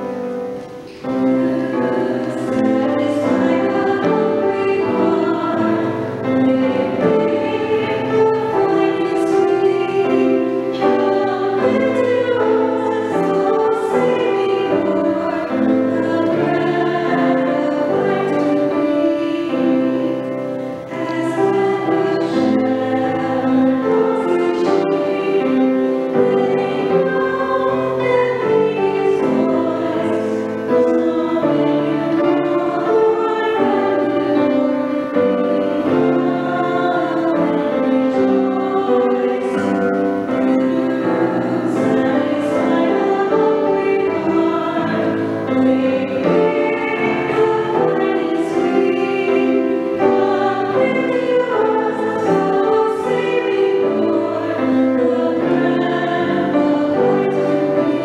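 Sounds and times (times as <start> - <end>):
piano accompaniment: 0.0 - 58.0
woman singing a hymn: 0.8 - 58.0.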